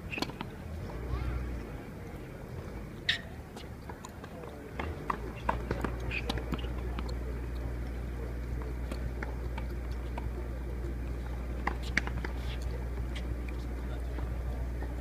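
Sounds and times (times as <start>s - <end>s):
tennis balls struck with racquets: 0.0s - 1.6s, 3.1s - 15.0s
murmur of spectators talking: 0.0s - 15.0s.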